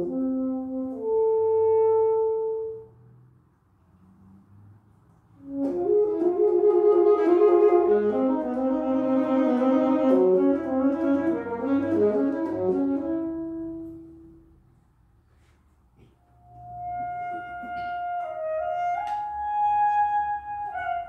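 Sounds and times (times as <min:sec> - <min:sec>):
saxophone playing: 0:00.0 - 0:02.9, 0:05.4 - 0:14.5, 0:16.6 - 0:21.0.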